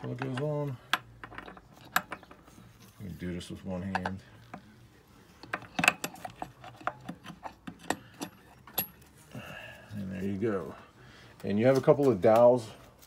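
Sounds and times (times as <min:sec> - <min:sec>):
metal gearbox parts clicking: 0:05.4 - 0:09.0.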